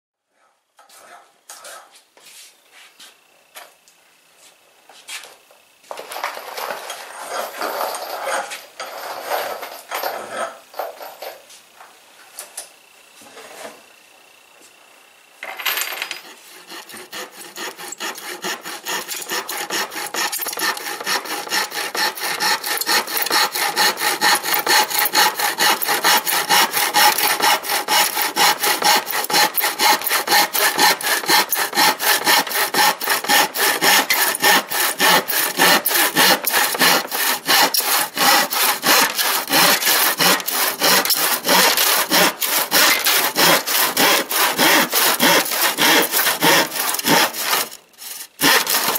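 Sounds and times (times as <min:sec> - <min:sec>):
handsaw cutting plywood: 0:16.2 - 0:48.9.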